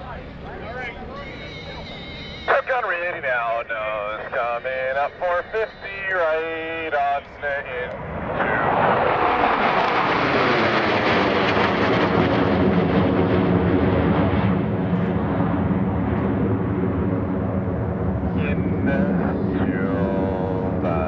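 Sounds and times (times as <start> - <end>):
jet engines roaring past: 0.0 - 21.0.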